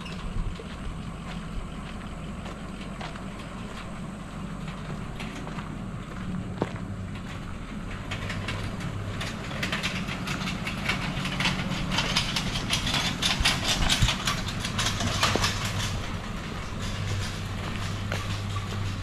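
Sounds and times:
low engine hum: 0.0s - 19.0s
clicking and rattling: 7.2s - 19.0s.

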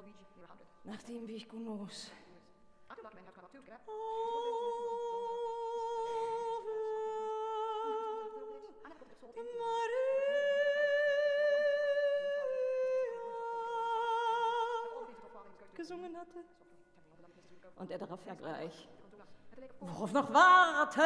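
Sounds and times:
soprano voice singing with vibrato: 3.8s - 16.5s, 19.8s - 21.0s.

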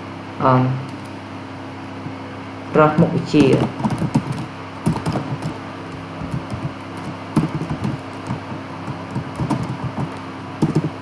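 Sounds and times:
steady low hum: 0.0s - 11.0s
computer keyboard key clicks: 3.7s - 5.6s, 6.3s - 11.0s.

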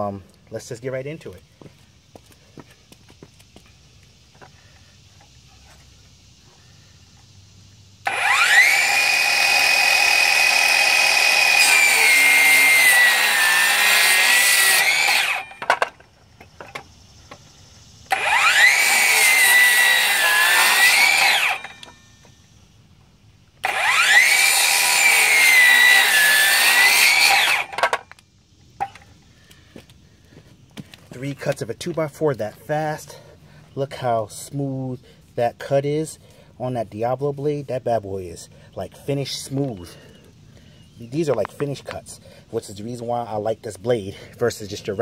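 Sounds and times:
circular saw cutting wood: 8.0s - 16.0s, 18.1s - 22.4s, 23.6s - 28.1s.

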